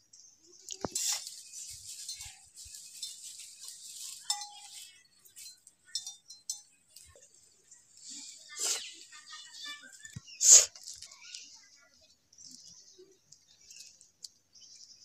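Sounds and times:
glass bangles clinking: 0.1s - 7.8s.

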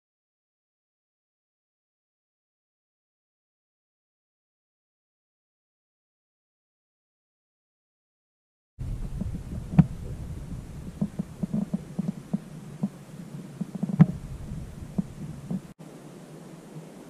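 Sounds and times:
muffled thumps and knocks: 8.8s - 15.7s
low rumble: 8.8s - 15.8s.

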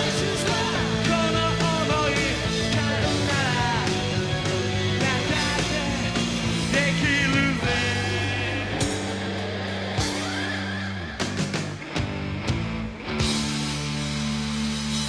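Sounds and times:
man singing: 0.0s - 9.2s
rock band playing: 0.0s - 15.0s.

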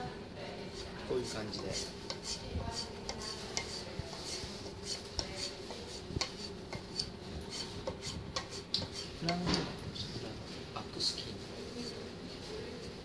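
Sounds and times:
knife scraping on wooden strop: 0.8s - 9.4s.

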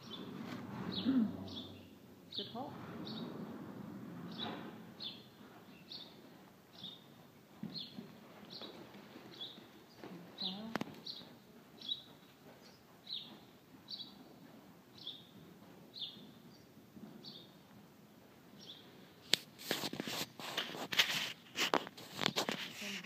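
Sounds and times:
rustling: 19.2s - 23.0s.

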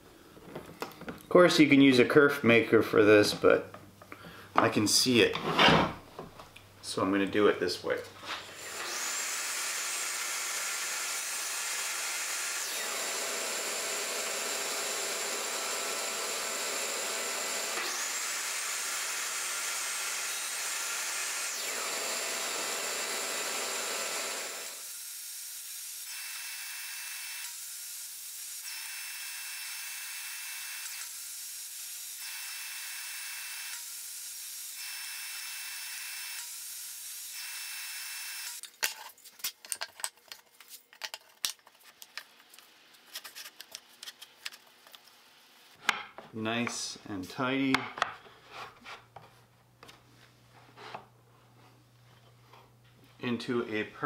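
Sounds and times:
table saw motor whine: 8.6s - 25.0s, 28.6s - 31.2s, 34.7s - 38.6s.

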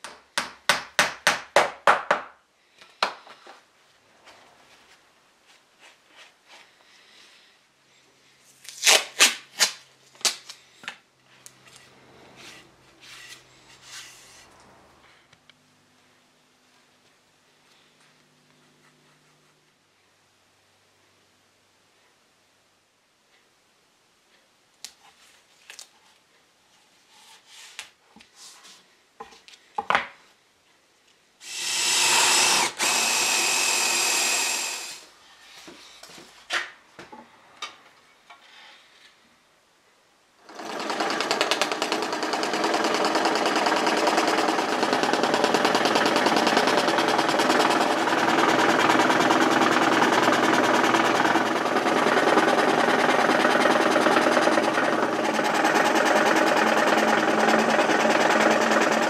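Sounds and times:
power tool rattling: 31.4s - 35.0s, 40.4s - 59.0s.

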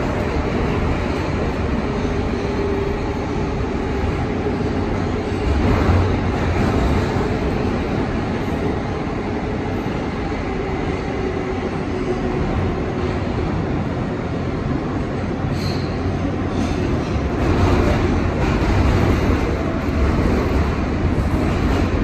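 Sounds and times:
subway car rumble and rail noise: 0.0s - 22.0s.

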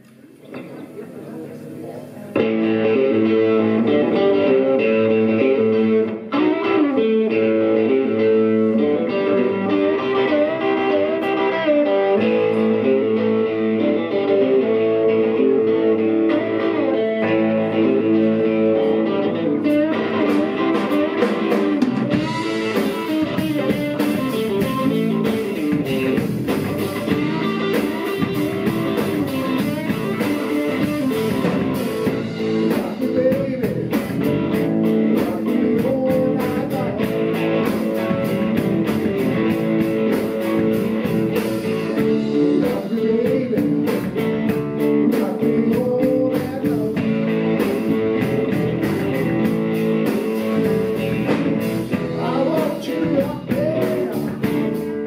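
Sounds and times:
blues band playing: 2.0s - 55.0s
drum kit and cymbals: 19.7s - 55.0s.

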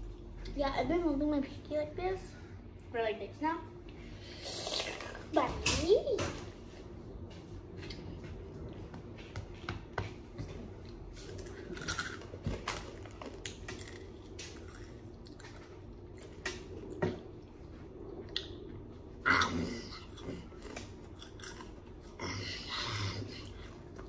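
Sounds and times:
child chewing food: 10.1s - 24.0s.

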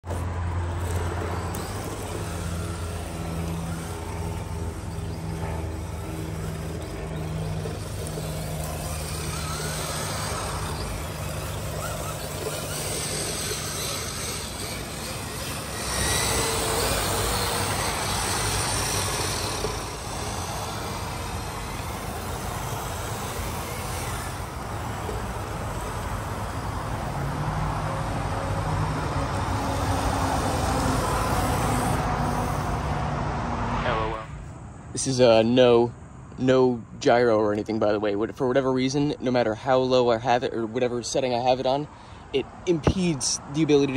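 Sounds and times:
low engine hum: 0.0s - 34.7s.

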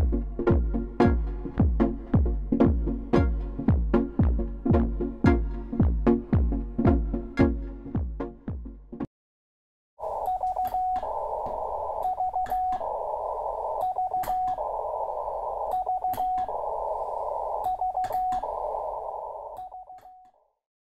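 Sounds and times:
radio receiver hiss: 10.0s - 20.0s
morse code beeps: 10.0s - 20.3s.

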